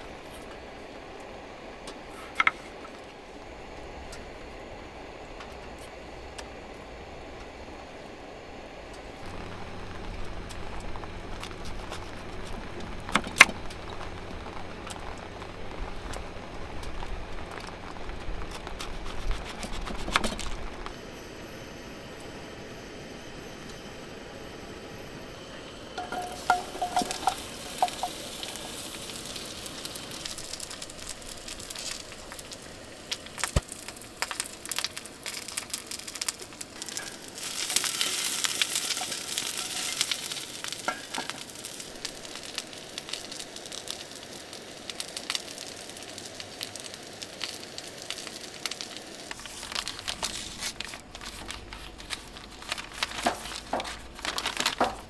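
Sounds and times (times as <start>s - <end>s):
vegetables sizzling in oil: 25.2s - 55.0s.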